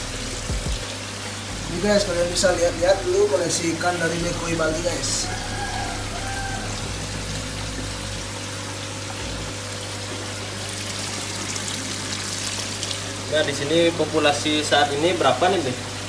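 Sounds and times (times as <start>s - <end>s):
low steady hum: 0.0s - 13.8s
water splashing into pond: 2.8s - 13.5s.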